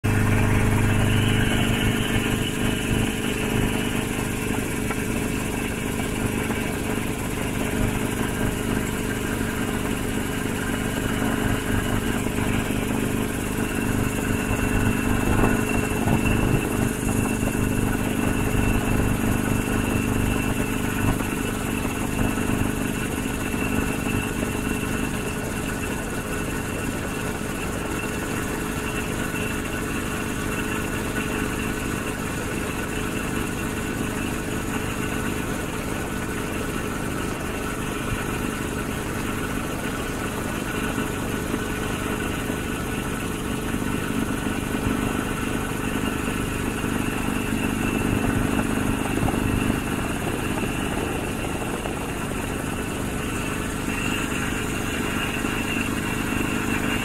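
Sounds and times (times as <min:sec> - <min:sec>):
high whine: 0:00.0 - 0:24.0, 0:39.7 - 0:57.0
drone propellers whirring: 0:45.8 - 0:57.0.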